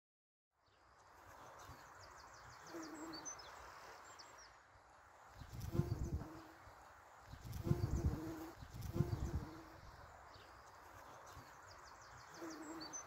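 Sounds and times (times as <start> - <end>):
birds chirping: 0.6 - 13.0.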